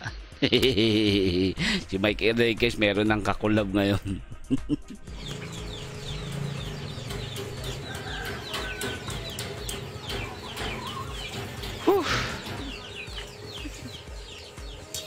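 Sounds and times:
chickens clucking and peeping: 5.0s - 15.0s.

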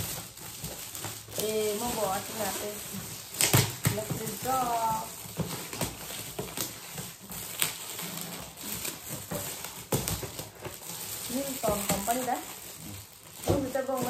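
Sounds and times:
wrapping paper rustling and crinkling: 0.0s - 14.0s.

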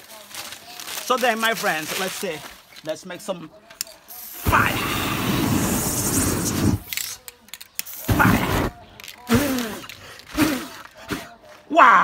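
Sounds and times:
flames whooshing: 4.3s - 6.9s, 8.0s - 9.4s.

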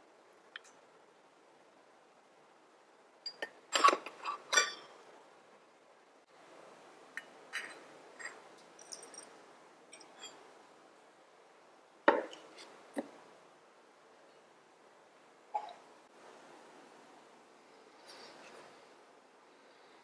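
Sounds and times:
metal pot and bowl clinking: 3.2s - 5.0s
faint hiss: 5.0s - 20.0s.

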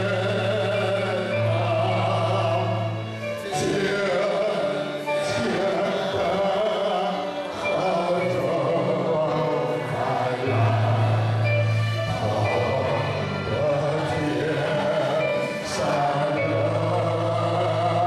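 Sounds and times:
congregation singing a hymn: 0.0s - 18.0s
instrumental accompaniment: 0.0s - 18.0s.

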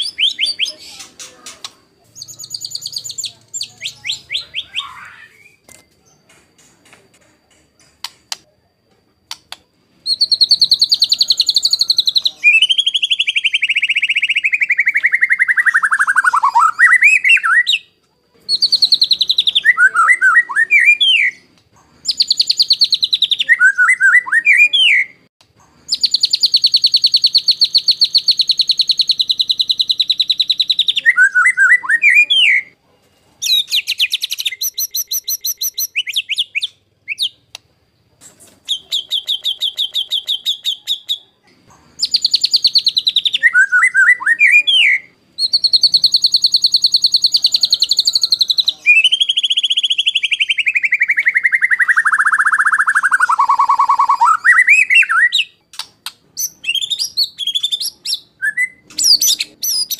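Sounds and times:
bird singing rattling trills: 0.0s - 8.3s, 10.0s - 17.9s, 22.0s - 25.0s, 25.8s - 32.7s, 41.9s - 59.9s.

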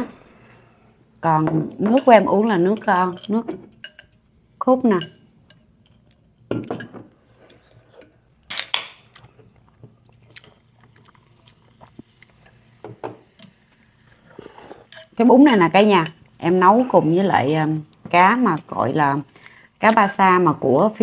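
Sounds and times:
utensils clinking against bowls: 1.8s - 8.2s, 14.3s - 17.8s
chewing: 9.1s - 12.8s.

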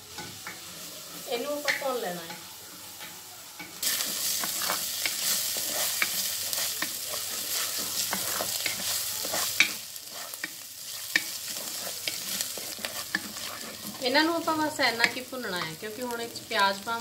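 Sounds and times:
food sizzling in hot oil: 0.0s - 17.0s
wooden spatula scraping pot: 3.8s - 15.8s.

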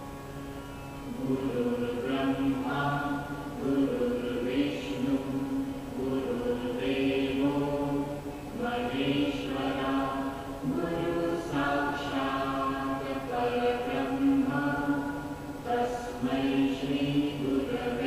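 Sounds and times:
voices chanting in long held notes: 1.0s - 18.0s.

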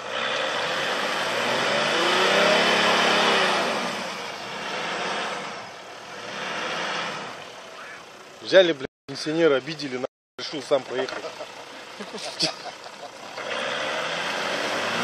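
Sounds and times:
engine revving hard: 0.0s - 7.4s, 13.3s - 15.0s.

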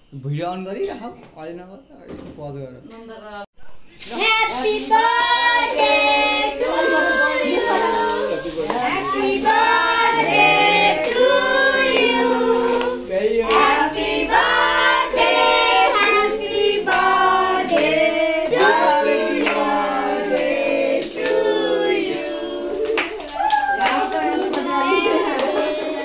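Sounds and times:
group singing held notes: 4.0s - 26.0s
hands clapping: 7.4s - 13.8s, 15.9s - 26.0s.

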